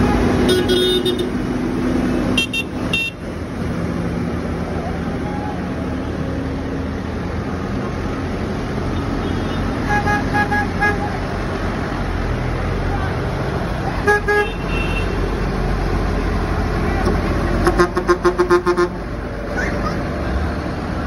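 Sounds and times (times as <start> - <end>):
horns tooting: 0.0 - 1.4, 2.3 - 3.3, 8.9 - 11.3, 14.0 - 15.4, 17.5 - 20.1
tractor diesel engines passing: 0.0 - 21.0.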